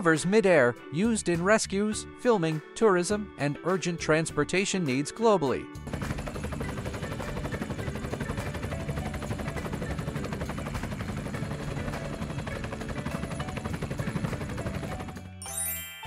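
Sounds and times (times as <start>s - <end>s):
helicopter rotor blades chopping: 5.8s - 15.4s.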